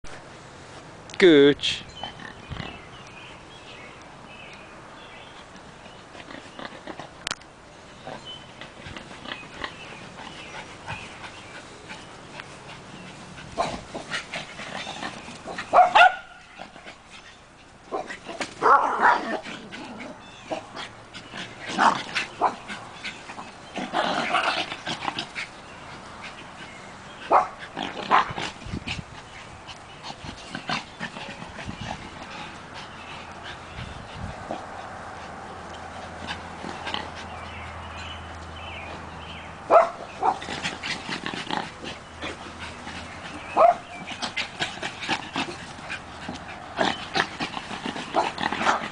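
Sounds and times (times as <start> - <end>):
small dogs barking: 13.1 - 17.0, 17.9 - 28.6, 39.6 - 48.9.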